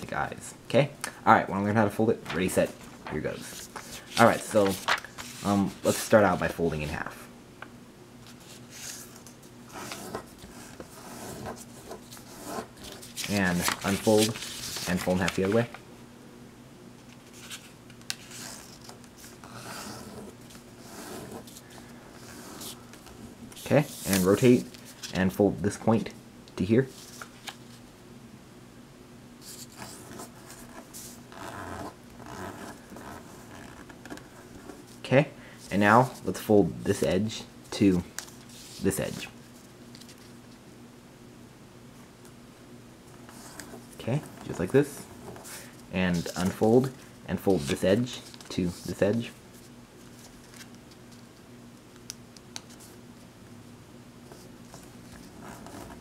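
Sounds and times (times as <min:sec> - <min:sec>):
paper rustling and swishing: 0:02.2 - 0:06.7, 0:08.3 - 0:15.8, 0:21.4 - 0:25.3.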